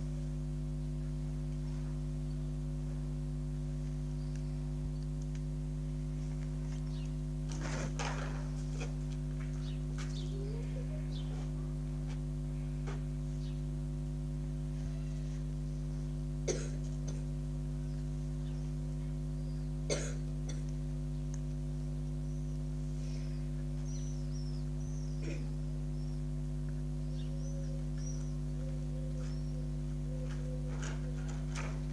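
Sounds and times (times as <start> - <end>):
steady low hum: 0.0 - 31.9
person coughing: 16.4 - 17.3, 19.9 - 20.7, 25.2 - 25.6.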